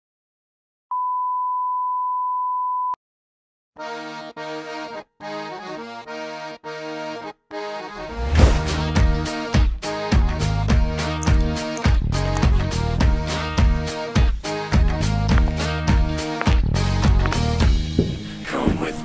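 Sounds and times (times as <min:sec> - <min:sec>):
drums with heavy low beat: 0:12.4 - 0:18.8.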